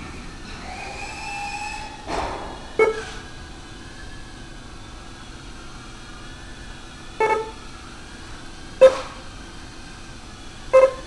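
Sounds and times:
short electronic beeps: 2.8s - 3.2s, 7.2s - 7.6s, 10.8s - 11.0s.

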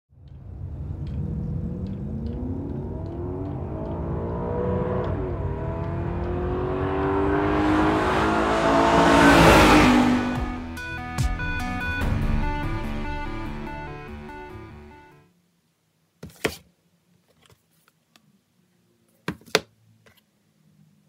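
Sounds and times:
car engine accelerating: 0.1s - 15.2s.

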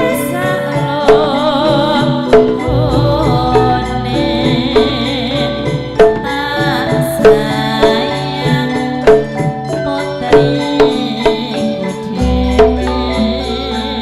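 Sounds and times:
drum beats: 0.0s - 9.6s
woman singing with wavering voice: 0.0s - 14.0s
metallophones ringing: 2.6s - 9.0s
deep low note: 2.7s - 6.0s.

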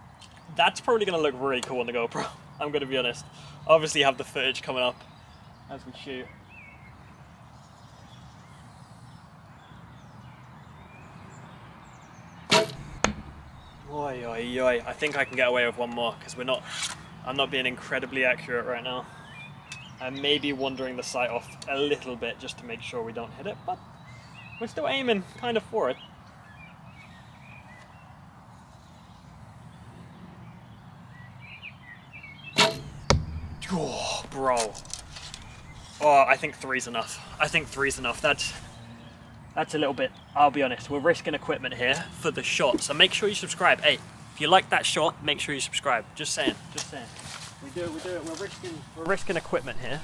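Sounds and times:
faint birdsong: 0.0s - 50.0s
bow string release: 12.5s - 15.0s, 32.6s - 36.1s
low wind rumble: 12.7s - 15.3s, 32.8s - 36.4s, 37.0s - 38.8s.

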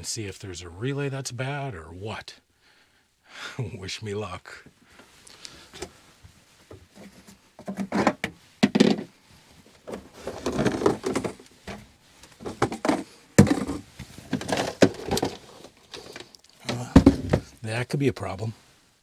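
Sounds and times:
knocks and thunks in cabinet: 12.5s - 13.8s, 16.7s - 17.5s.

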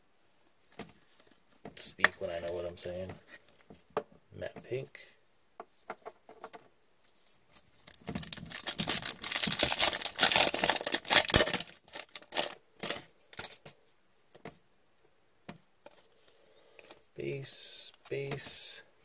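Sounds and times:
cards rustling: 7.4s - 13.7s
foil wrapper tearing and crinkling: 7.8s - 13.6s.

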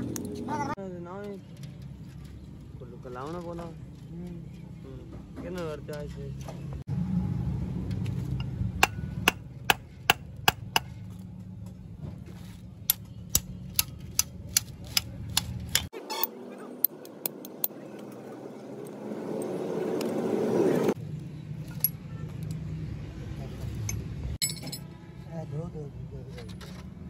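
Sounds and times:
hammer striking metal: 8.4s - 11.0s.

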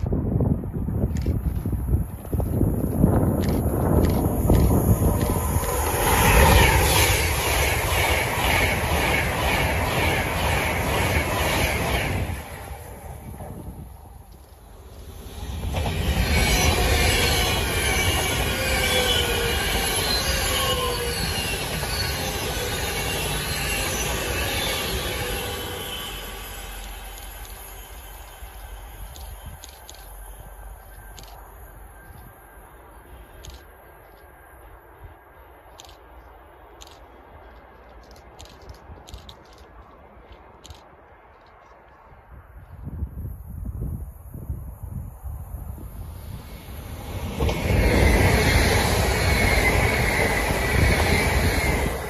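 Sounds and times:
low wind rumble on microphone: 0.0s - 14.8s, 38.4s - 52.0s
train passing at speed: 0.0s - 52.0s.

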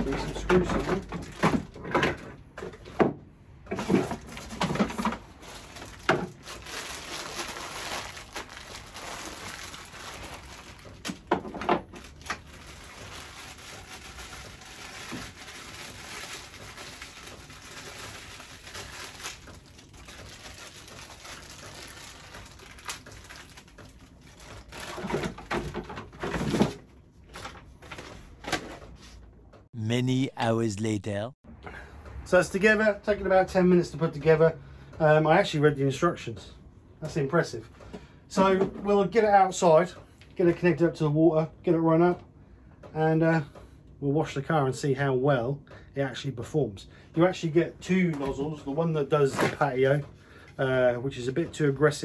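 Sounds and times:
plastic packaging rustling: 5.4s - 11.3s, 11.9s - 25.3s.

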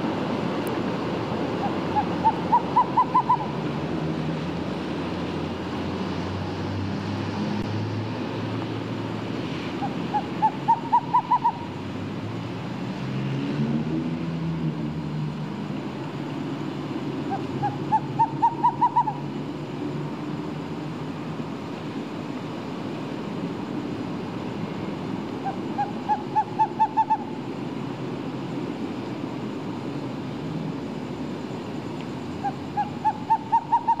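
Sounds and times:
owl hooting: 1.6s - 3.6s, 9.8s - 11.8s, 17.3s - 19.3s, 25.4s - 27.4s, 32.4s - 34.0s.

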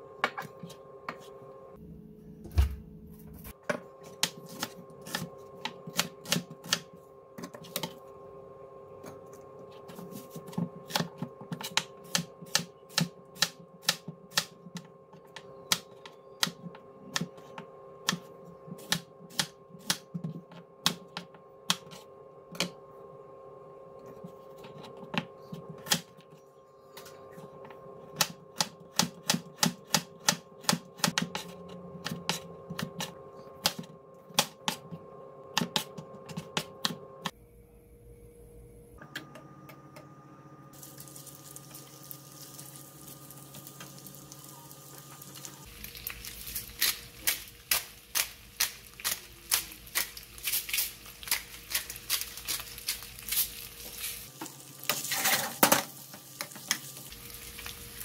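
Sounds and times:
knife chopping on plastic board: 28.2s - 37.0s
faint steady hum: 29.9s - 54.9s.

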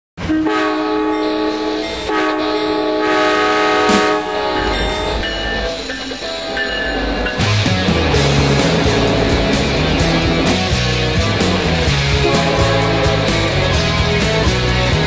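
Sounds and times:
locomotive air horn chord: 0.2s - 7.5s, 8.1s - 15.0s
train rumble: 0.2s - 15.0s.

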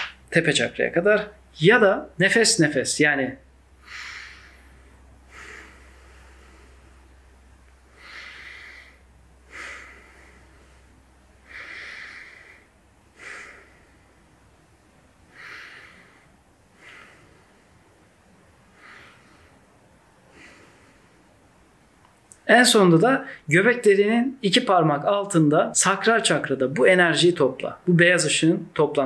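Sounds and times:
man breathing audibly: 3.8s - 22.0s.

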